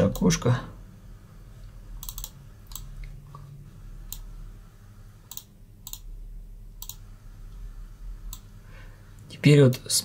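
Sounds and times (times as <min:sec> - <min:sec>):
low background hum: 0:00.0 - 0:10.0
computer mouse clicks: 0:02.0 - 0:03.4, 0:04.1 - 0:04.3, 0:05.3 - 0:06.1, 0:06.8 - 0:07.0, 0:08.3 - 0:08.5.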